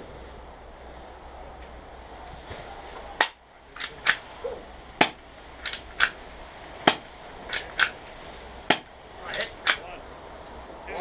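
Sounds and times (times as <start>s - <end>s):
airsoft gun shots: 5.0s - 6.2s, 6.8s - 8.0s, 8.7s - 9.8s.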